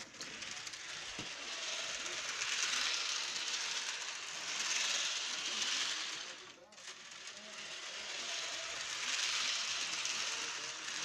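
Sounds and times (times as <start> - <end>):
model train whirring and rattling: 0.0 - 11.0.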